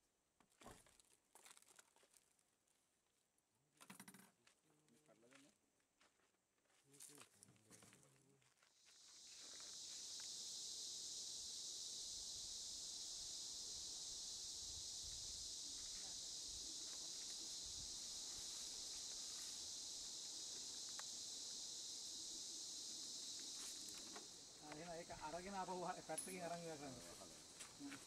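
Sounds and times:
insects chorus: 0:07.0 - 0:28.0.

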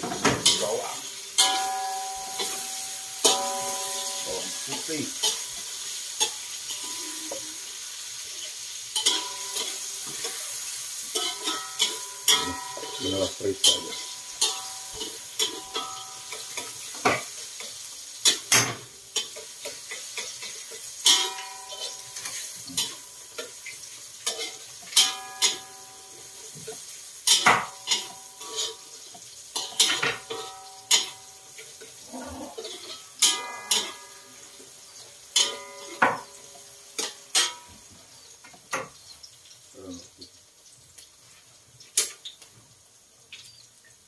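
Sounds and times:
spatula striking ringing wok: 0:00.0 - 0:07.7, 0:09.0 - 0:23.6, 0:24.2 - 0:32.0, 0:32.6 - 0:34.6, 0:35.3 - 0:37.8
metal spatula scraping wok: 0:00.0 - 0:18.6, 0:19.2 - 0:23.6, 0:24.2 - 0:34.6, 0:35.4 - 0:37.7
garlic sizzling in oil: 0:00.0 - 0:44.0.

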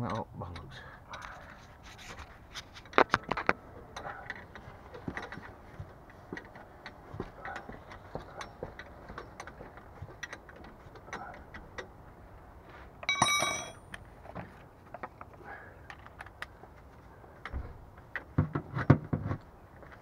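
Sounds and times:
loud metallic clang: 0:13.0 - 0:13.8
metal hand tools clinking: 0:13.0 - 0:13.8.

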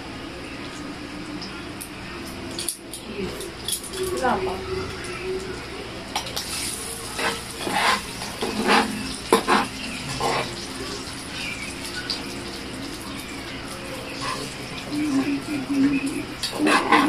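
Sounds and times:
meat sizzling on a grill pan: 0:06.1 - 0:17.0.

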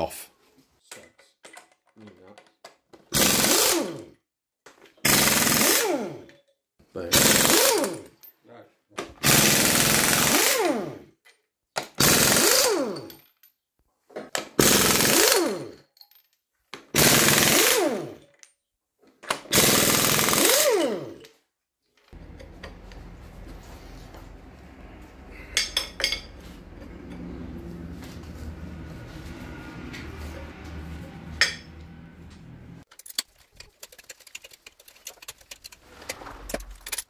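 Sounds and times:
impact wrench hammering: 0:14.5 - 0:15.8, 0:19.5 - 0:21.2
low hum: 0:22.2 - 0:32.8.

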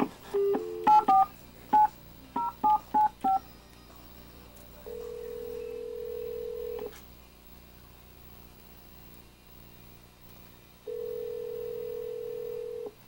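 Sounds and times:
telephone ringback tone: 0:04.8 - 0:06.9, 0:10.9 - 0:12.9.

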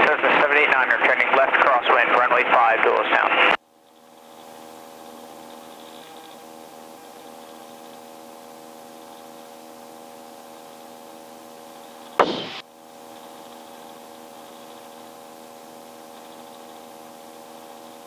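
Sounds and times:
helicopter engine and rotor drone: 0:03.6 - 0:09.2
loud burst of noise: 0:12.2 - 0:12.6.

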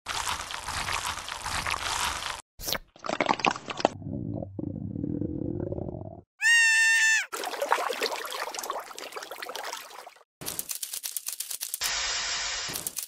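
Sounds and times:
high cartoon squeak: 0:06.4 - 0:07.3
mud sloshing: 0:07.4 - 0:10.2.

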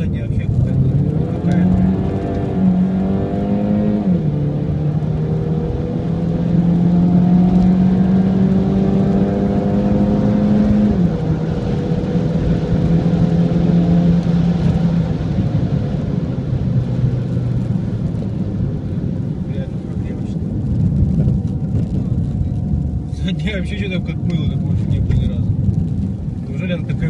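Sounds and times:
car engine accelerating: 0:00.0 - 0:27.0.

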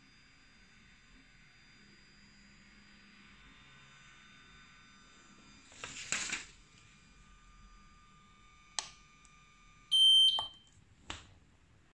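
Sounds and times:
loud high beep: 0:09.9 - 0:10.6.

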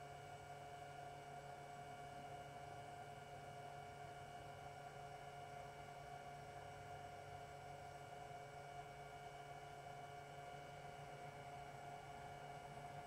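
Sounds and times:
heater burner hum: 0:00.0 - 0:13.0.

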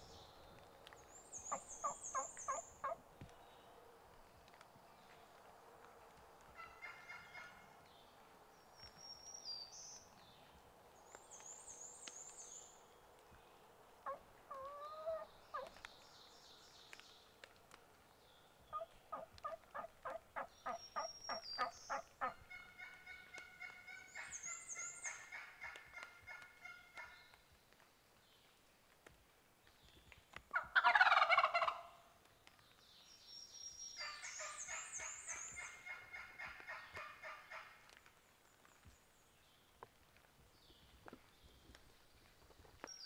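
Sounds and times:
songbirds chirping: 0:00.0 - 0:43.0
wild turkey calling: 0:01.4 - 0:03.0, 0:06.6 - 0:07.7, 0:14.0 - 0:15.8, 0:18.7 - 0:27.2, 0:30.5 - 0:32.0, 0:34.0 - 0:37.8.

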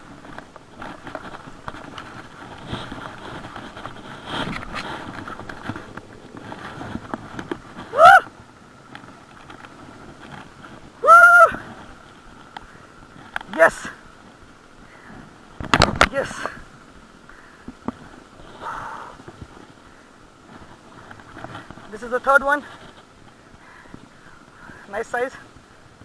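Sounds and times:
footsteps through dry grass: 0:00.0 - 0:13.3
short high cries: 0:07.9 - 0:08.3, 0:11.0 - 0:11.6.

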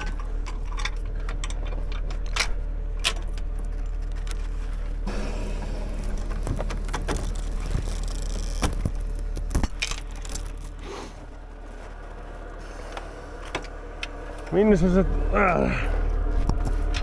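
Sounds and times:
steady low hum: 0:00.0 - 0:17.0
steel chain rattling and clinking: 0:03.0 - 0:11.6, 0:16.3 - 0:17.0.

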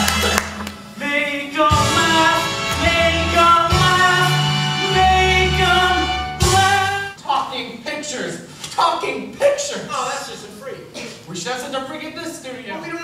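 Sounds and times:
instrumental accompaniment: 0:01.6 - 0:07.2.

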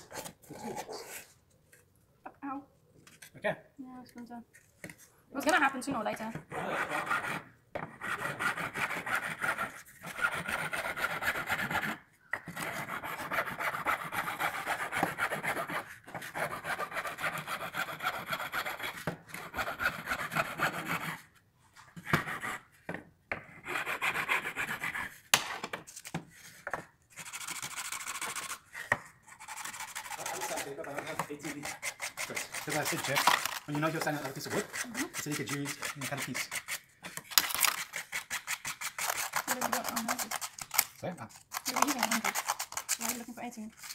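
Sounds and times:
file rasping on wood: 0:06.3 - 0:21.4, 0:22.0 - 0:25.3, 0:27.1 - 0:43.2.

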